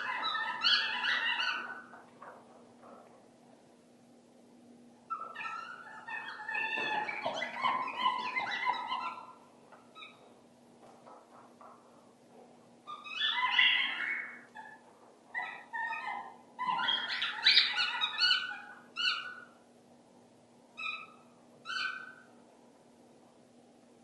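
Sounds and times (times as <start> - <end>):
dog whining and yelping: 0.0 - 2.0, 5.1 - 10.3, 12.9 - 19.6, 20.8 - 22.3.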